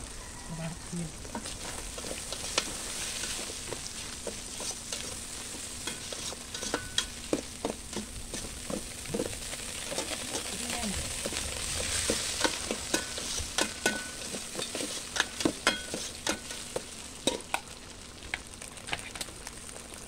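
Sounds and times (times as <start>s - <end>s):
sauce sizzling in a pot: 0.0s - 20.0s
metal ladle scraping a pot: 1.3s - 10.5s, 11.1s - 17.4s.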